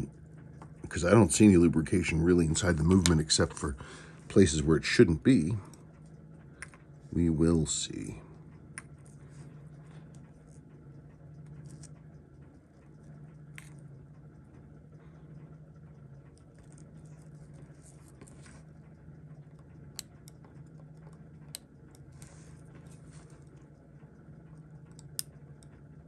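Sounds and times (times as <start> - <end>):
low background hum: 0.0 - 26.0
tweezers clicking on metal parts: 24.5 - 25.8.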